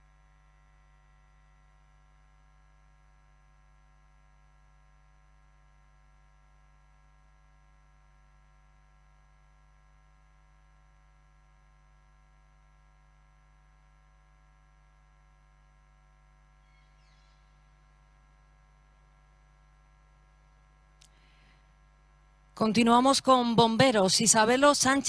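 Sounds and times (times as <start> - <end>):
faint electrical hum: 0.0 - 25.0.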